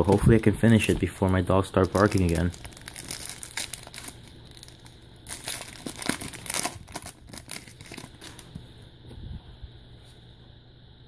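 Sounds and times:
foil wrapper crinkling: 0:00.0 - 0:08.5.

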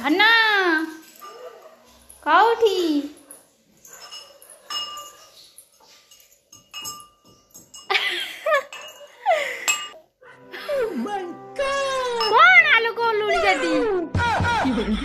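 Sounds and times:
metal pot clinking: 0:01.0 - 0:10.0, 0:12.2 - 0:12.6.

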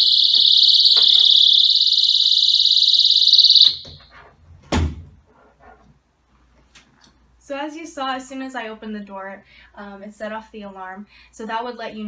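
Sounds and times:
shrill pulsing alarm: 0:00.0 - 0:04.0.

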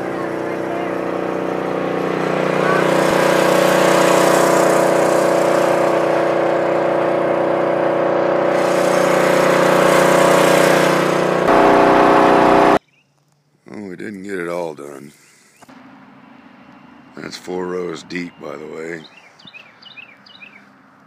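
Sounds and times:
small gasoline engine running: 0:00.0 - 0:12.8.

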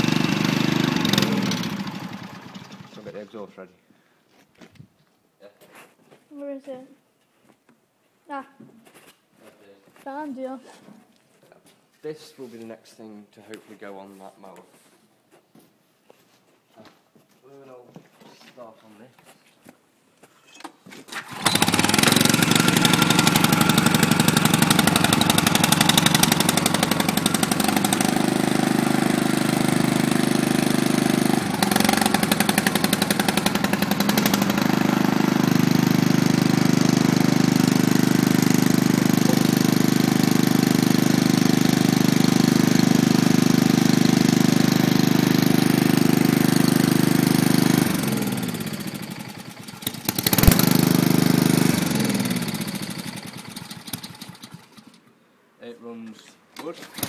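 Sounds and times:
engine shutting off: 0:00.0 - 0:03.2, 0:21.2 - 0:55.0
generator engine running: 0:00.0 - 0:03.2, 0:21.2 - 0:54.9.

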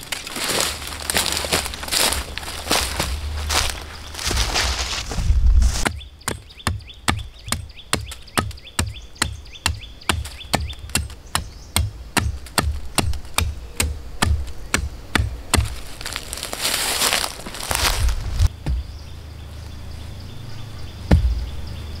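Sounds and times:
sharp knocks with dull thuds: 0:04.2 - 0:15.9, 0:17.8 - 0:19.0, 0:21.1 - 0:21.5.

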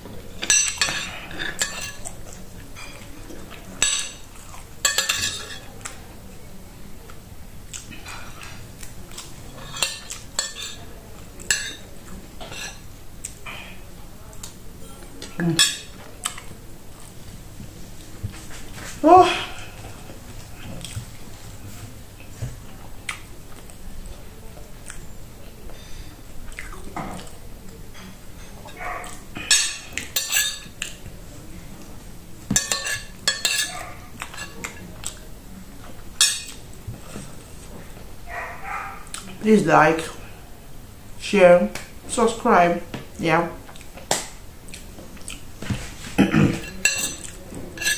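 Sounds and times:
spoon clattering on plate: 0:00.4 - 0:02.0, 0:03.8 - 0:04.2, 0:04.8 - 0:05.7, 0:09.6 - 0:10.8, 0:11.5 - 0:11.8, 0:28.0 - 0:31.0, 0:32.5 - 0:34.6, 0:46.5 - 0:47.9.

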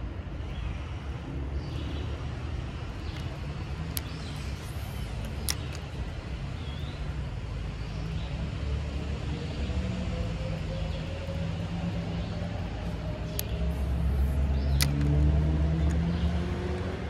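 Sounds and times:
sharp clicks: 0:03.0 - 0:06.2, 0:13.2 - 0:17.0.

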